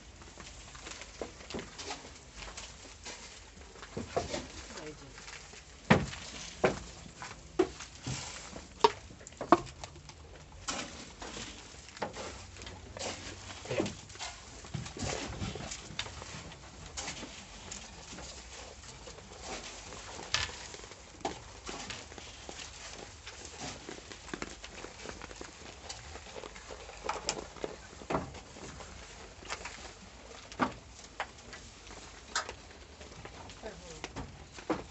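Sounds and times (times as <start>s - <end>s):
grain rustling: 10.2s - 34.9s.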